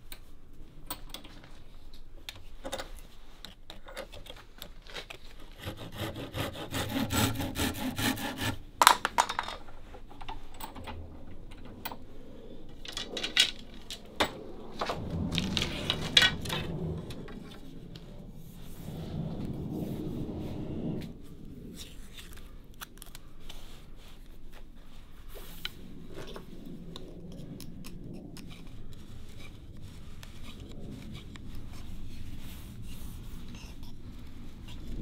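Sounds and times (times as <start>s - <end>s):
hand saw scraping bamboo: 5.4s - 8.7s.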